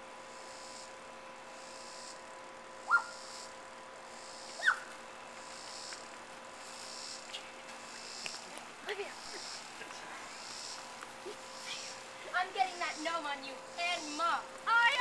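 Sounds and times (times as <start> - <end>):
insects chirping: 0.3 - 15.0
high yelps dropping in pitch: 2.8 - 3.3, 4.6 - 4.9.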